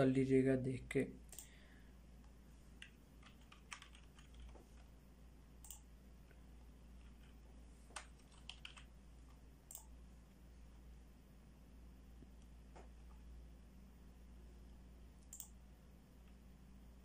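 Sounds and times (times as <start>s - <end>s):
low steady hum: 0.0s - 17.0s
keyboard typing and clicks: 2.8s - 4.9s, 5.6s - 10.0s, 15.2s - 15.6s.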